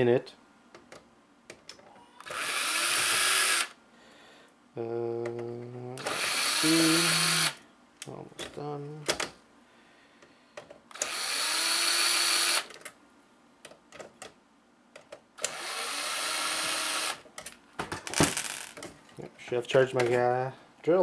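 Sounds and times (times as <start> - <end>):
cordless drill motor whirring: 2.2 - 3.8, 6.0 - 7.6, 10.9 - 12.7, 15.4 - 17.2.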